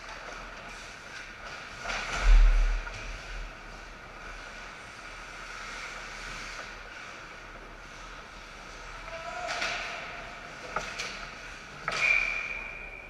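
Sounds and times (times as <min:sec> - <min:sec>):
hockey sticks and puck clacking: 0:08.8 - 0:13.0
referee's whistle: 0:11.9 - 0:13.0.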